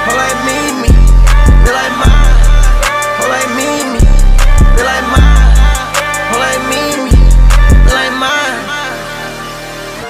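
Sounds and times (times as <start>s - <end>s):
melodic line: 0.0s - 10.0s
sharp percussion hits: 0.8s - 8.0s
deep bass note: 4.0s - 5.8s.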